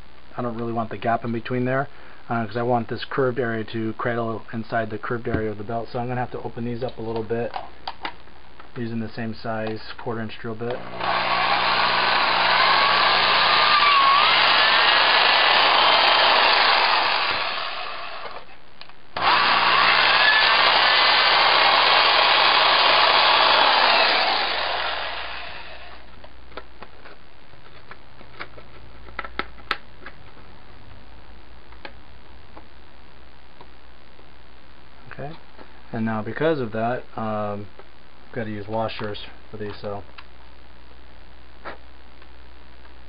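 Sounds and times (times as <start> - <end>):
power drill drilling into plastic: 10.8 - 18.4, 19.2 - 26.0.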